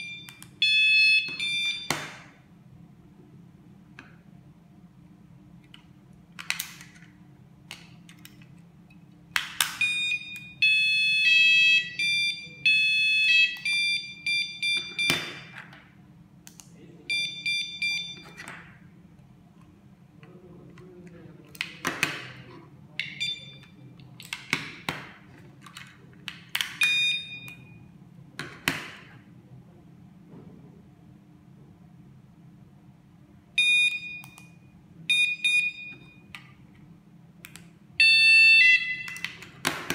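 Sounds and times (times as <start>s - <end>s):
door alarm beeping: 0.0s - 2.4s, 9.7s - 15.6s, 17.1s - 18.5s, 23.0s - 23.8s, 26.8s - 27.9s, 33.6s - 36.4s, 38.0s - 39.3s.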